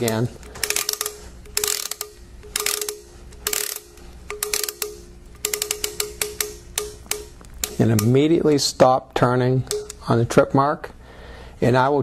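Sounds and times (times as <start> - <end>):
ratcheting clicks of adjusting screw: 0.0 - 8.3, 9.7 - 10.1.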